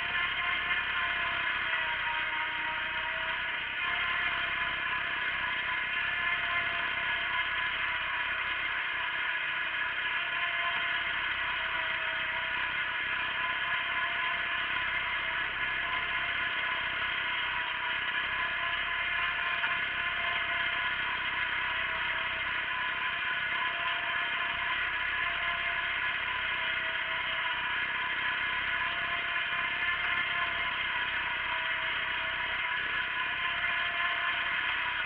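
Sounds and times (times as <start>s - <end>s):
garden tractor engine running: 0.0s - 35.0s.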